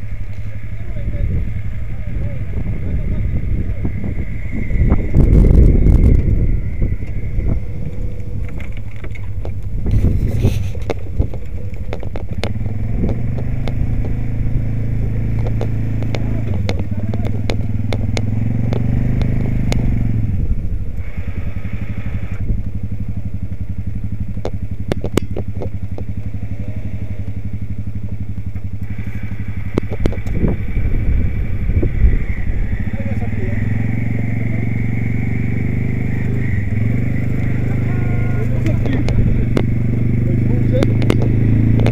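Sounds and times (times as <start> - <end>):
atv engine under load: 0.0 - 41.9
sharp clicks and snaps: 7.9 - 14.2, 15.3 - 19.9, 24.3 - 26.2, 29.7 - 30.4, 38.6 - 39.8, 40.7 - 41.9.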